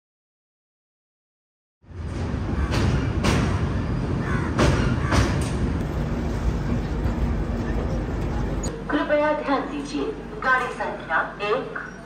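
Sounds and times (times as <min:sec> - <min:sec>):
train rumbling over bridge: 0:01.8 - 0:12.0
train wheel clacks: 0:02.1 - 0:03.8, 0:04.4 - 0:05.9.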